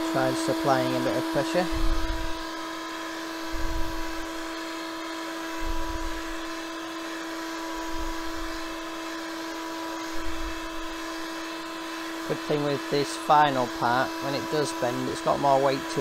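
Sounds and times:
heat gun motor humming: 0:00.0 - 0:16.0.

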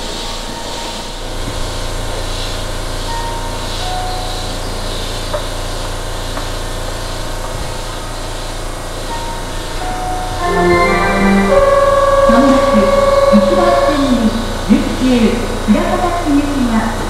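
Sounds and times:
electric train equipment humming: 0:07.4 - 0:17.0.

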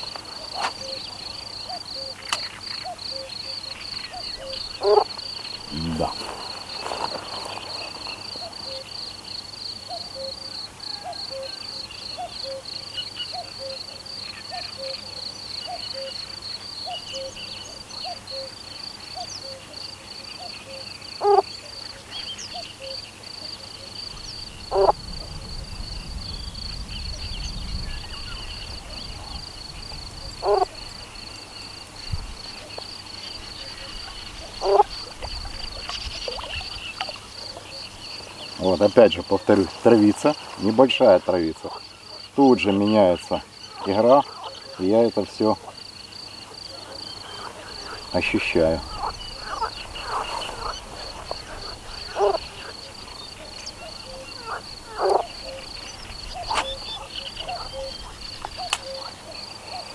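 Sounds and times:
insects chirping trill: 0:00.0 - 0:59.9
loud animal calls: 0:02.8 - 0:09.1, 0:24.6 - 0:25.5, 0:30.2 - 0:30.8, 0:33.6 - 0:37.8, 0:46.5 - 0:59.9.

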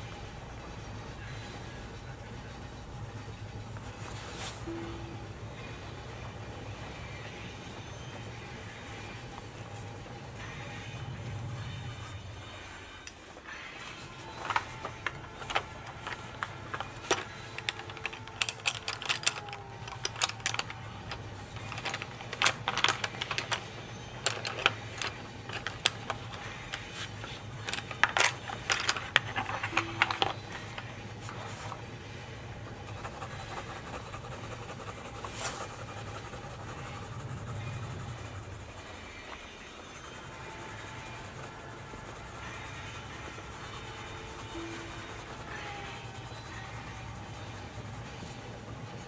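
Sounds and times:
pencils clicking in a tin: 0:14.0 - 0:31.8.

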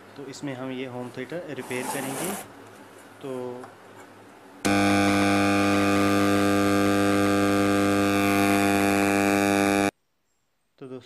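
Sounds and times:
speaker buzzing hum: 0:04.6 - 0:09.9.

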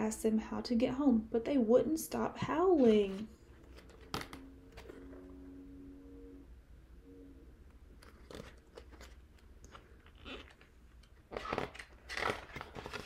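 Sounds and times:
book pages rustling: 0:02.8 - 0:05.2, 0:08.0 - 0:13.0.

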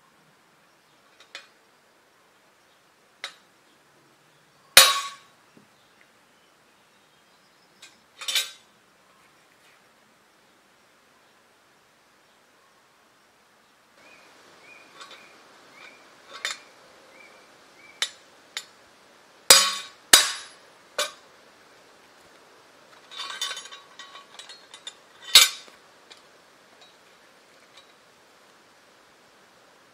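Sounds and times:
small clatters: 0:14.9 - 0:16.7, 0:22.3 - 0:28.0.

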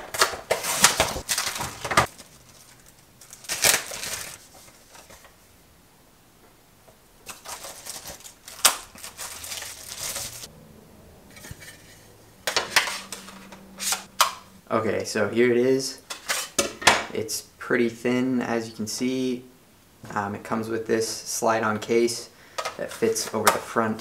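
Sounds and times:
packaging being torn and crumpled: 0:00.1 - 0:05.0, 0:07.3 - 0:10.5.

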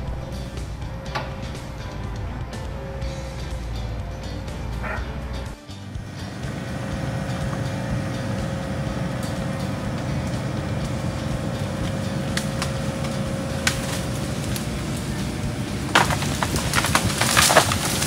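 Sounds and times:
diesel engine running: 0:00.0 - 0:18.0
faint steady whine: 0:05.9 - 0:18.0.

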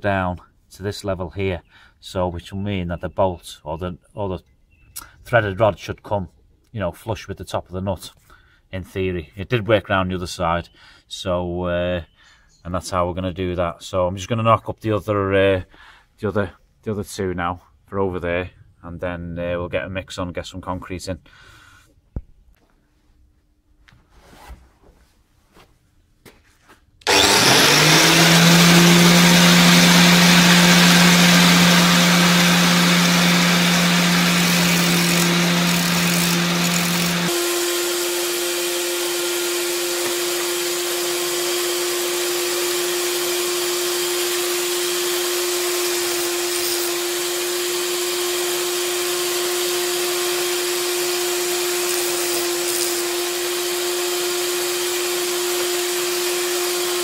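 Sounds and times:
electric angle grinder running: 0:27.0 - 0:57.0.

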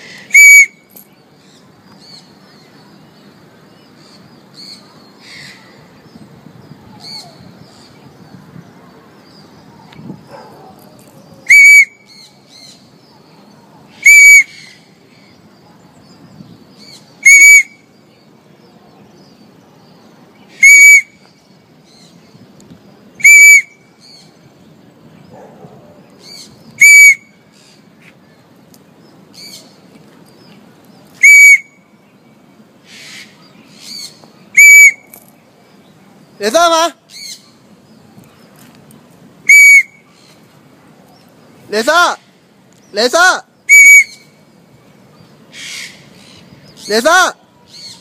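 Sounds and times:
parrot calling shrilly: 0:00.0 - 0:00.9, 0:11.4 - 0:12.8, 0:13.9 - 0:14.8, 0:16.8 - 0:17.8, 0:20.5 - 0:21.2, 0:23.2 - 0:24.2, 0:26.2 - 0:27.3, 0:31.2 - 0:31.8, 0:32.9 - 0:35.1, 0:39.5 - 0:40.2, 0:43.0 - 0:44.3, 0:45.5 - 0:48.0.

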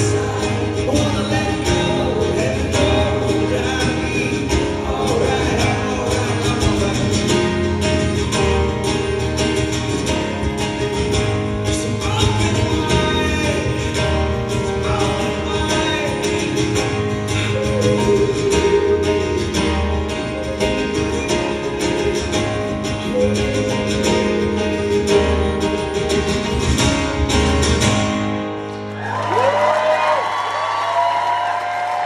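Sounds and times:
acoustic guitar strumming: 0:00.0 - 0:29.1
audience cheering and whooping: 0:28.7 - 0:32.0.

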